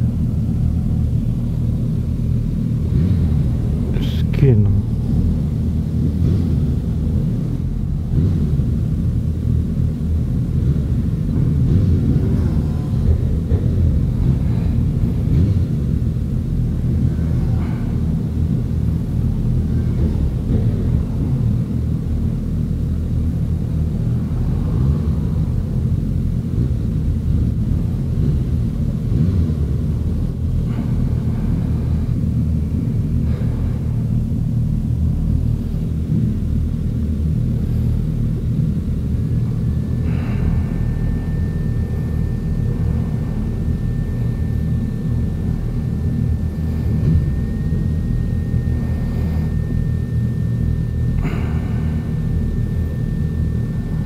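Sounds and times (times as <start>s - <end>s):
other motorcycle engines idling: 0.0s - 54.0s
motorcycle engine idling: 4.8s - 54.0s
thin steady high tone: 39.0s - 54.0s.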